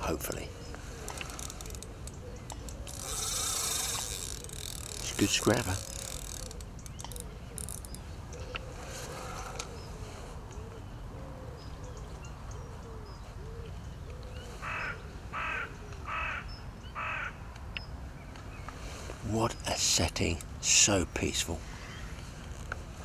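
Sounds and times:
crow cawing: 14.6s - 17.4s.

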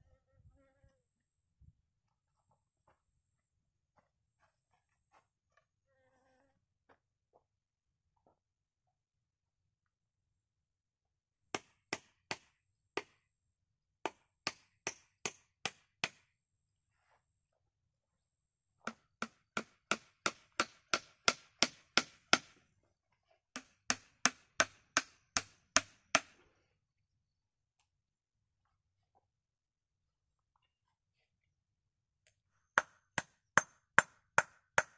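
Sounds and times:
hatchet striking wood: 11.5s - 13.2s, 14.0s - 16.3s, 18.8s - 22.6s, 23.6s - 26.4s, 32.8s - 34.9s.

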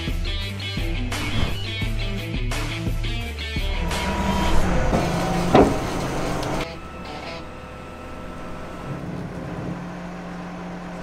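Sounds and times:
engine running: 3.5s - 11.0s.

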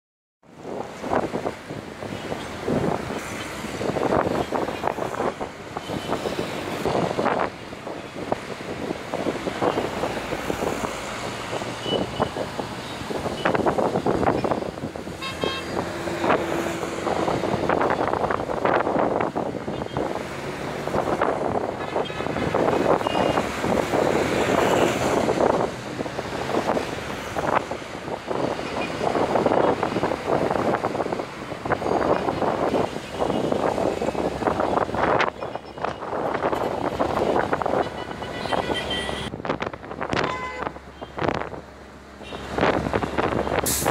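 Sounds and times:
road traffic noise: 0.4s - 43.9s
wind buffeting microphone: 0.5s - 41.7s, 42.4s - 43.9s.

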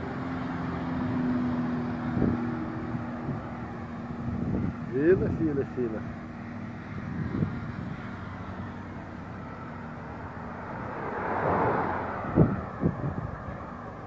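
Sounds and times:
truck engine humming: 0.0s - 14.0s
rush of noise: 10.0s - 14.0s.

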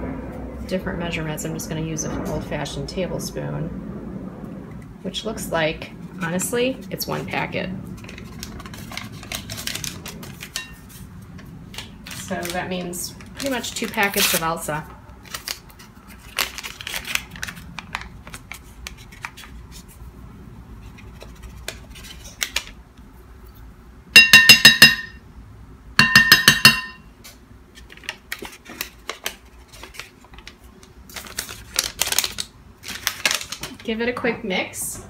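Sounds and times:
metal spoon rapping on bowl: 24.2s - 25.2s, 26.0s - 27.0s.

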